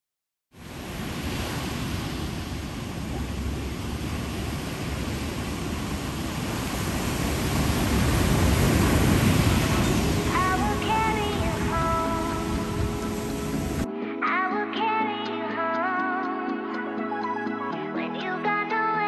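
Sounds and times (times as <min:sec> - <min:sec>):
ocean waves breaking: 0:00.6 - 0:13.9.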